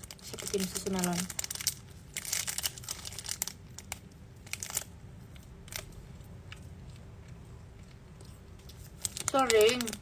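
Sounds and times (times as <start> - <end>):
plastic packaging crinkling: 0.0 - 6.1, 8.6 - 10.0
faint room hum: 0.0 - 10.0.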